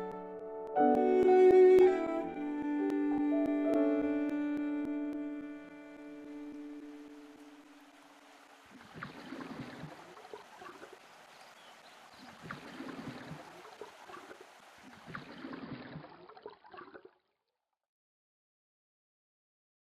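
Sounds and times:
water lapping and gurgling: 6.2s - 17.4s.

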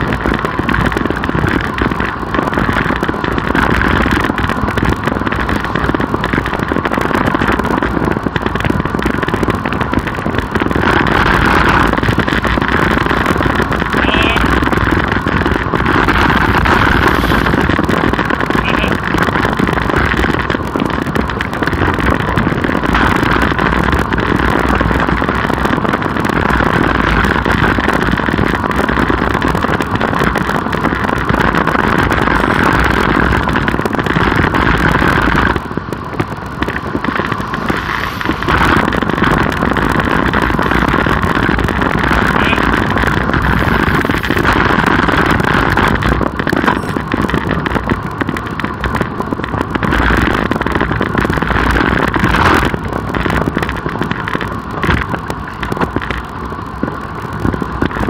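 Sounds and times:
passing car traffic: 0.0s - 57.9s
wind and road noise: 0.0s - 58.0s.

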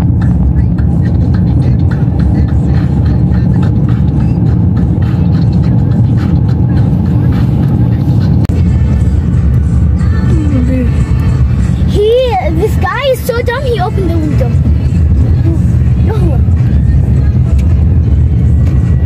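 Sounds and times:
wind and road rumble: 0.0s - 19.0s.

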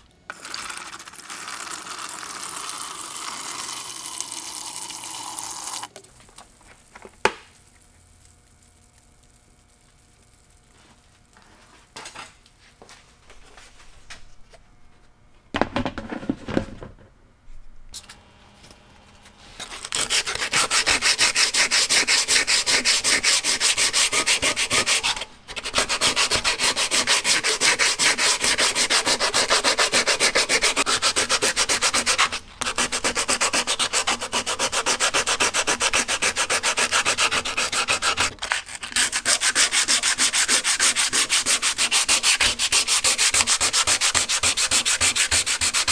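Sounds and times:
sandpaper rasping on wood: 19.7s - 45.9s.

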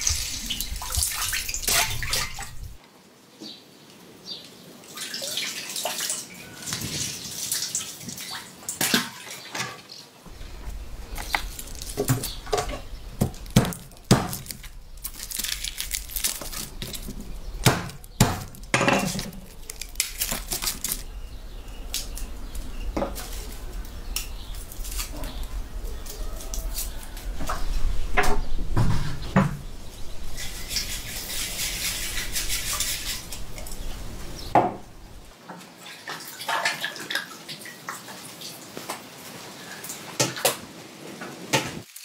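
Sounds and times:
water running from a hose: 0.0s - 2.8s
garlic cracking on wooden board: 13.2s - 21.1s.

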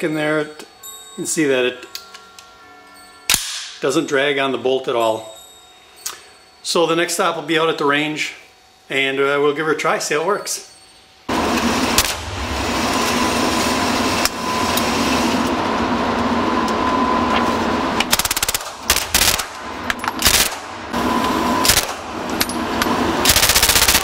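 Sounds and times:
steady background hum: 0.0s - 24.0s
gunshots indoors: 18.1s - 19.6s, 20.2s - 20.7s, 21.6s - 22.1s, 23.2s - 24.0s.

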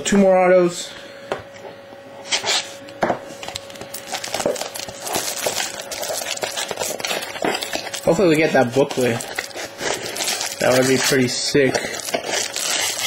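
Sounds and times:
cards being handled: 3.4s - 13.0s
card pack wrapper crinkling and tearing: 3.5s - 13.0s.

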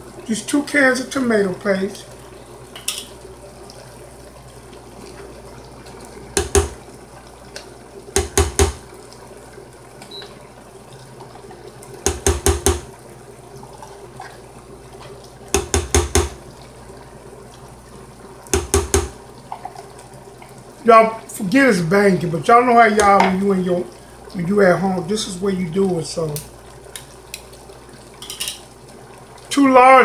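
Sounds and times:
cans knocking against pot: 6.4s - 6.8s, 8.2s - 8.8s, 12.0s - 12.9s, 15.5s - 16.4s, 18.5s - 19.2s.

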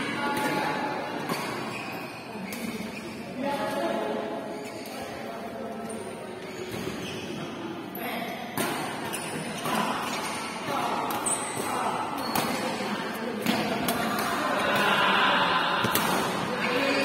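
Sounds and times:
shoes squeaking on court floor: 1.2s - 3.4s, 4.4s - 5.2s, 5.8s - 7.6s, 8.8s - 13.3s.

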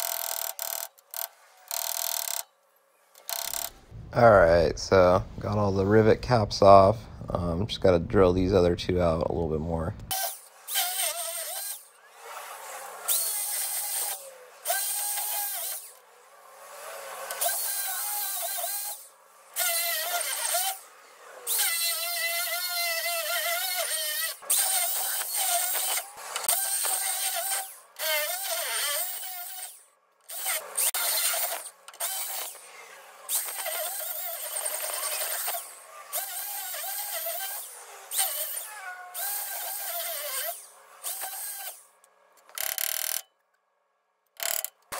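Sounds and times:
hammer drill whining: 0.0s - 2.5s, 3.1s - 3.9s, 10.1s - 12.4s, 13.0s - 16.1s, 17.2s - 20.8s, 21.4s - 32.7s, 33.3s - 43.3s, 44.4s - 44.9s.

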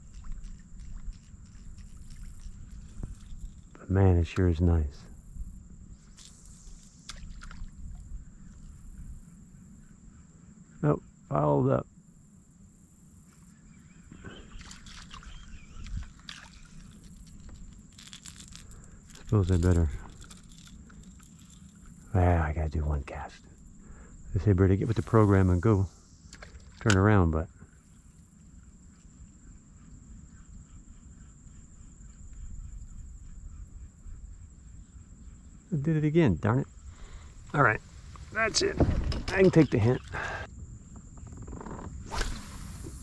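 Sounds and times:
wind rumble on microphone: 0.0s - 3.8s, 7.2s - 9.4s, 15.3s - 16.2s, 36.7s - 43.0s
water trickling: 14.4s - 22.1s.

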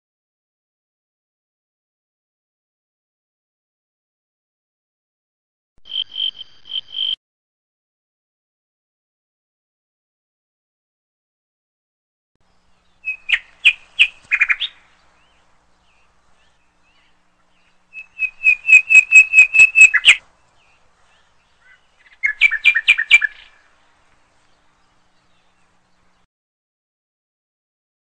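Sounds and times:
songbird singing sharp notes: 12.4s - 26.3s.

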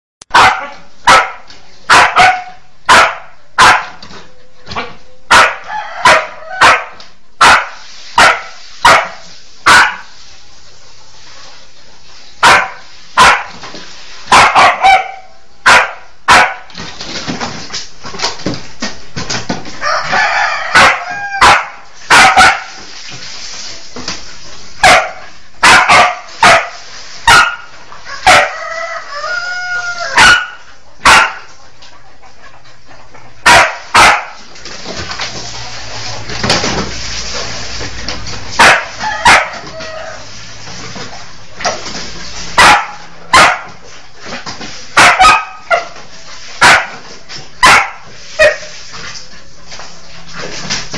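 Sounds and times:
dog barking: 0.3s - 4.0s, 5.3s - 10.1s, 12.4s - 13.5s, 14.3s - 16.7s, 20.7s - 22.7s, 24.8s - 28.6s, 30.1s - 31.5s, 33.4s - 34.4s, 38.6s - 39.9s, 42.6s - 43.8s, 45.0s - 46.0s, 46.6s - 47.0s, 47.6s - 48.7s
chicken squawking: 38.6s - 40.3s.

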